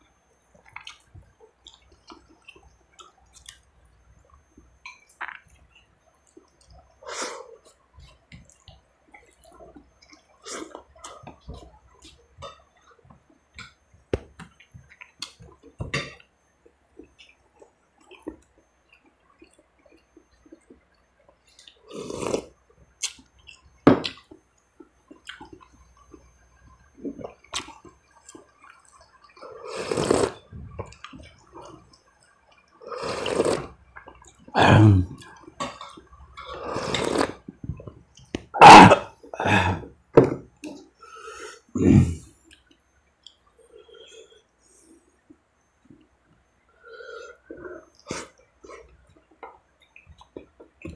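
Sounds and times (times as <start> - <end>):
man slurping soup: 21.9 - 22.5, 29.6 - 30.4, 32.9 - 33.8, 36.5 - 37.4.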